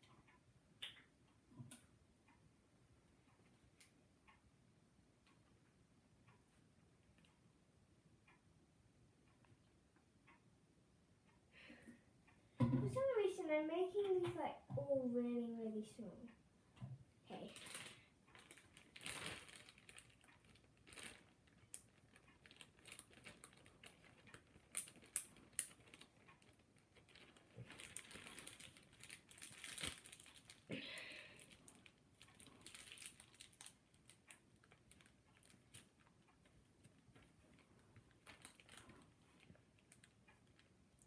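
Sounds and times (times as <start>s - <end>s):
plastic bag crinkling: 17.3s - 40.7s.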